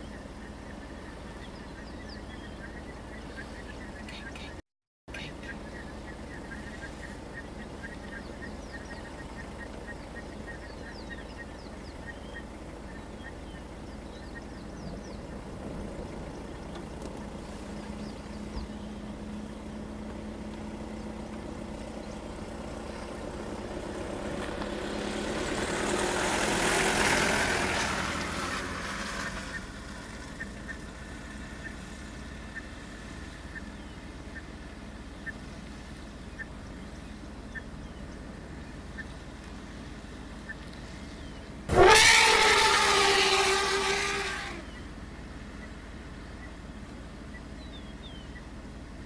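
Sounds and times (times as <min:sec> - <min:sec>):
vehicle engine idling: 0:00.0 - 0:49.0
broad rushing noise: 0:41.7 - 0:44.8.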